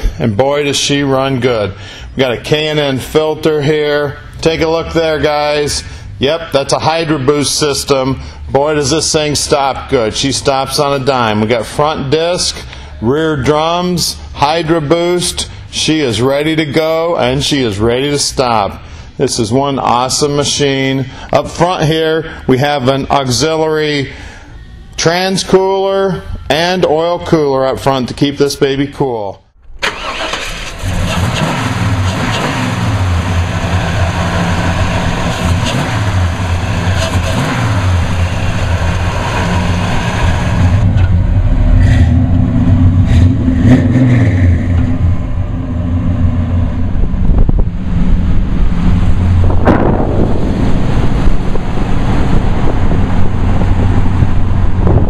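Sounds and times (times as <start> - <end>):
car engine idling and revving: 2.0 - 16.6, 29.9 - 55.0
car pulling away: 29.8 - 55.0.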